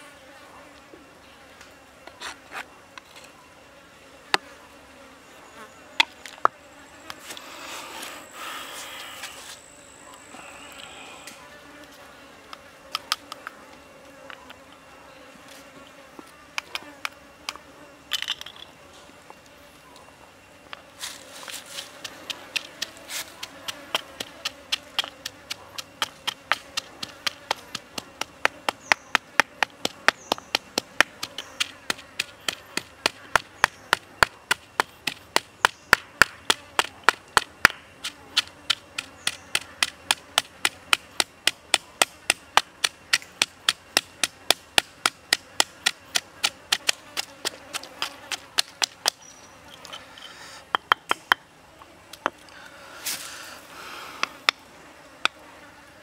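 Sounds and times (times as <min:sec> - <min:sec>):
pestle pounding in stone mortar: 0:22.0 - 0:37.8, 0:38.4 - 0:49.2.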